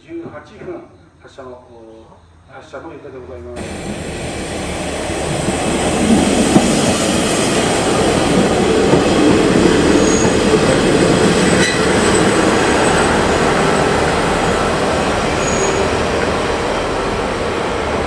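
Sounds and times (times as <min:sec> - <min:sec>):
diesel train passing: 0:03.2 - 0:18.0
high wheel squeals: 0:09.6 - 0:16.2.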